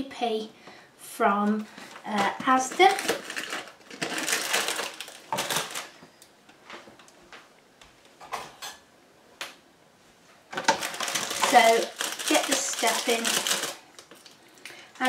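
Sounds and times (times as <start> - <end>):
plastic bag crackling rustle: 1.7 - 6.0, 10.6 - 14.6
cardboard packet tearing: 2.6 - 6.0, 10.6 - 14.4.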